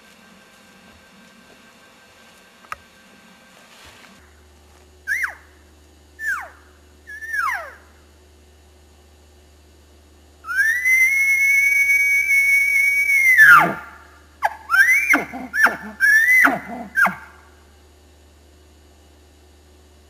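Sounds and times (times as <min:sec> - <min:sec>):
elk bugling: 0:06.2 - 0:08.0, 0:10.5 - 0:17.4
short falling squeals: 0:10.5 - 0:17.4.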